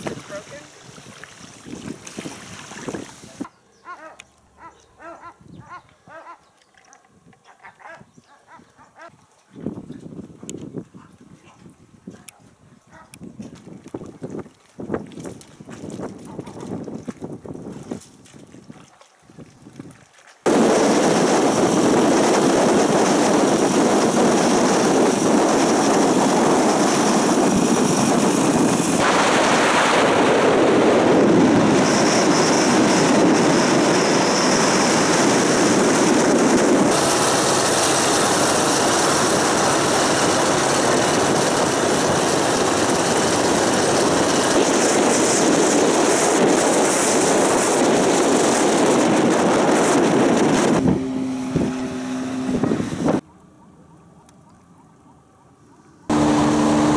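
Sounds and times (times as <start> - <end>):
wind and road noise from car: 0.0 - 3.5, 19.7 - 56.9.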